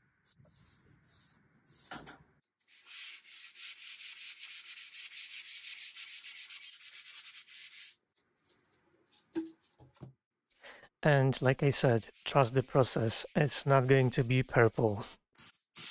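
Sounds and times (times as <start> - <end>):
sanding sponge rubbing wood: 2.7 - 8.0, 11.4 - 15.9.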